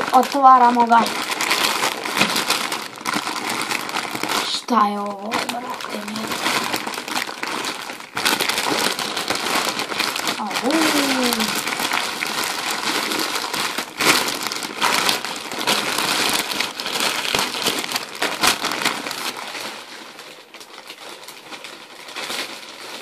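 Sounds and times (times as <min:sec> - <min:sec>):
parcel wrapping crinkling: 0:00.0 - 0:23.0.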